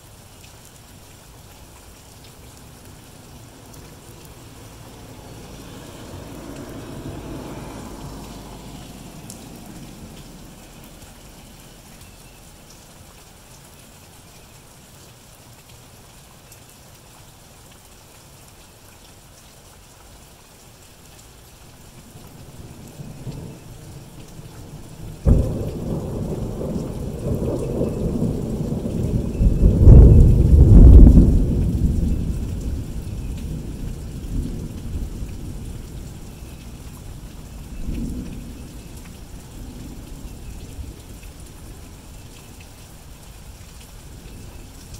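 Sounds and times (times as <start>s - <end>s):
steady rain falling: 0.0s - 44.9s
thunder rumbling: 3.6s - 11.1s, 22.4s - 36.2s
loud thunder clap: 29.7s - 31.5s.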